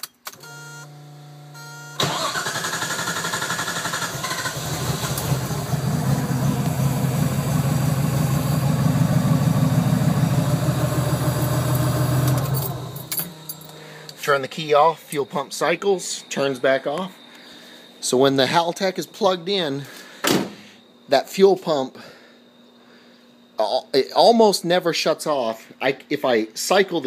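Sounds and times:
starter cranking with a whine: 2.0 - 6.8
car engine idling: 2.0 - 14.2
fuel pump hum: 2.0 - 14.2.

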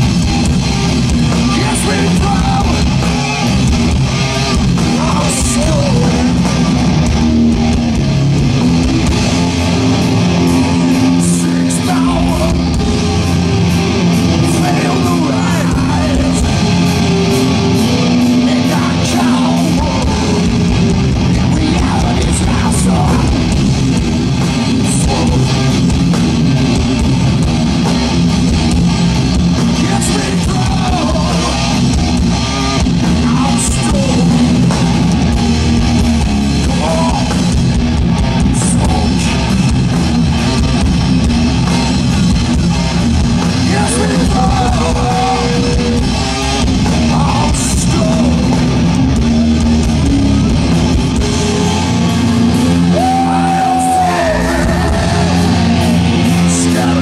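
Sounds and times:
bass: 0.0 - 57.0
distorted electric guitars: 0.0 - 57.0
drum kit: 0.0 - 57.0
person singing: 10.2 - 13.0, 14.3 - 20.7, 43.6 - 46.1, 51.2 - 57.0.

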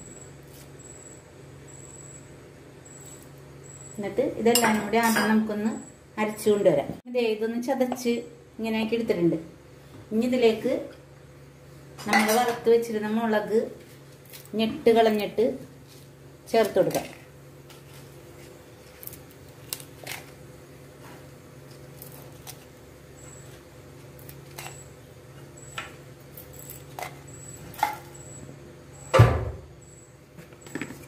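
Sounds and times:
loud thump: 29.1 - 29.7.

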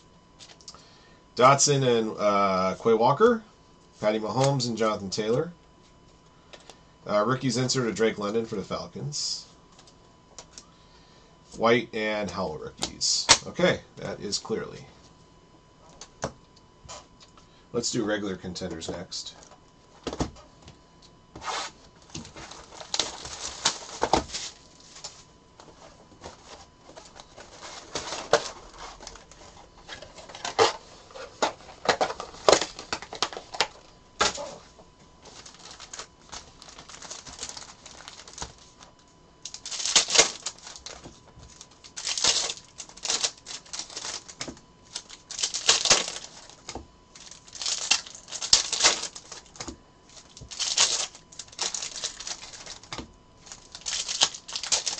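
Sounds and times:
foil wrappers crinkling and tearing: 22.0 - 54.9.

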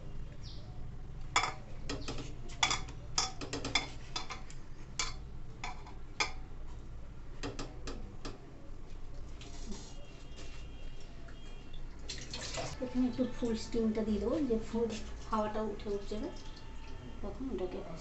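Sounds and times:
parcels clicking against metal pot: 1.3 - 6.5, 7.4 - 8.4.

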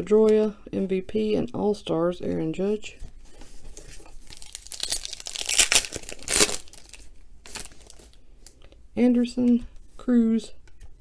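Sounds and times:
foil wrapper crinkling: 3.7 - 8.2.

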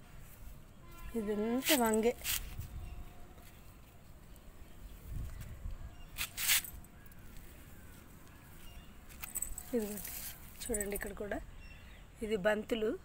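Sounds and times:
short rustling noises: 1.6 - 2.8, 9.1 - 11.0.

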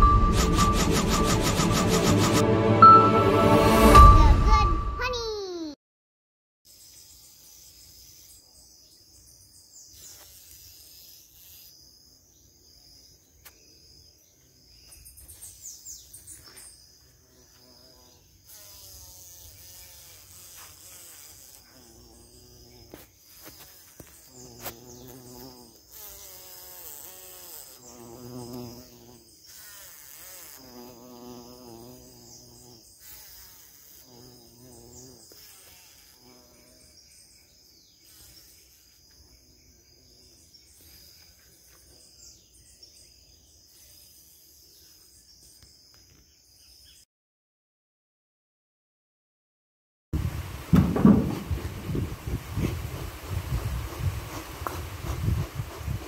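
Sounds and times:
honeybees buzzing: 0.0 - 2.5, 6.7 - 8.7, 10.0 - 11.8, 17.0 - 37.2, 50.2 - 56.0
high insect chirring: 6.7 - 42.5
bee flying past microphone: 17.2 - 36.9, 50.2 - 56.0.

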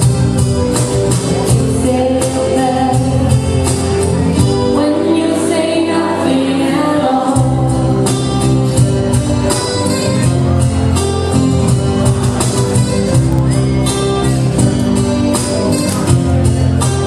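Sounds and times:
acoustic guitars playing: 0.0 - 17.0
low bass notes: 0.0 - 17.0
woman singing: 1.4 - 8.4.

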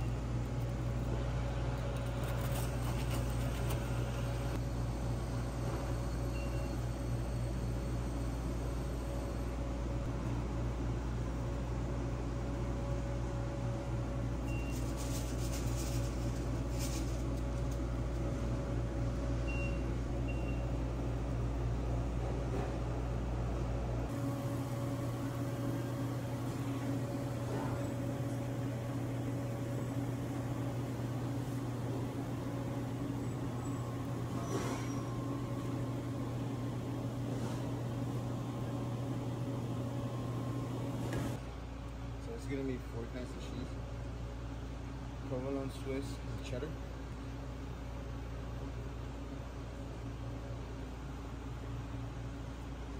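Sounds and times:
kitchen equipment humming: 0.0 - 41.4
faint high beeps: 6.2 - 9.4.

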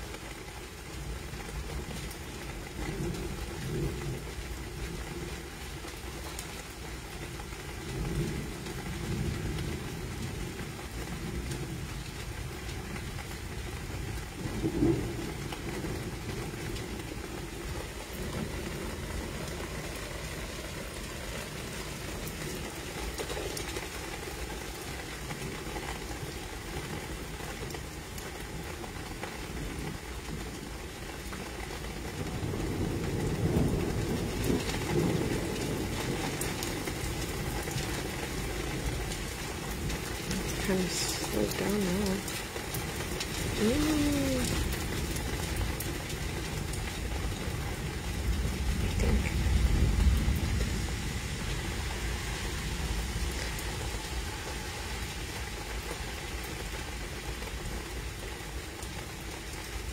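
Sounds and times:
steady rain: 0.0 - 59.9
low thunder rumbles: 7.8 - 22.8, 32.1 - 40.6, 42.2 - 55.6.

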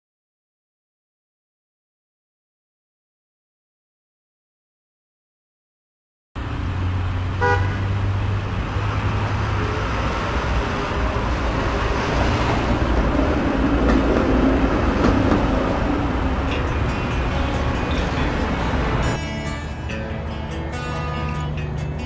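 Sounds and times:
car road rush and engine rumble: 6.4 - 22.0
car horn toot: 7.4 - 7.9.

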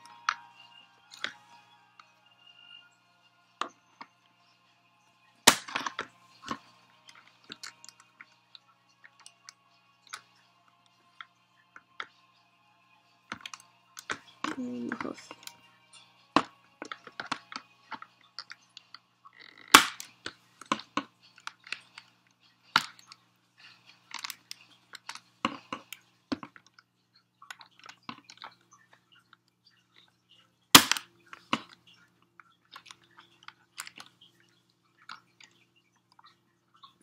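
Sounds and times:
sharp plastic snaps: 5.5 - 6.6, 19.7 - 20.1, 30.8 - 31.8.

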